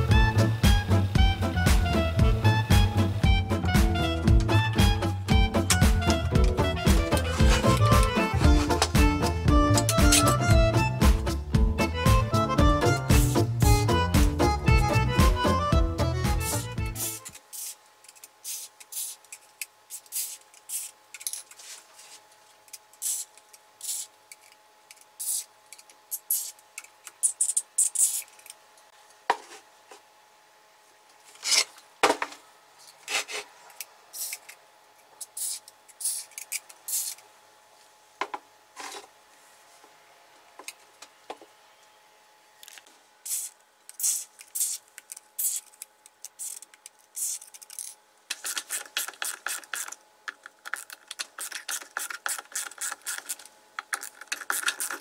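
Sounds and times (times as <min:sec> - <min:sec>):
rag scrubbing metal housing: 0:05.6 - 0:09.1.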